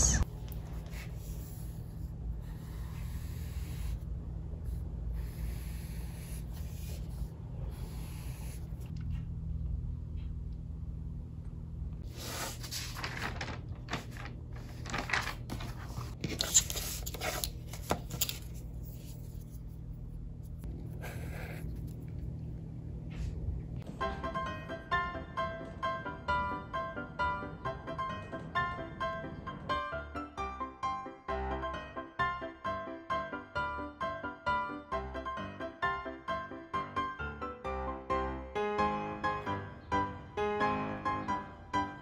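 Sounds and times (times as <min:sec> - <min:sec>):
steady low hum: 0:00.0 - 0:23.9
highlighter scratching on paper: 0:00.7 - 0:04.1, 0:04.7 - 0:08.9, 0:21.0 - 0:22.0.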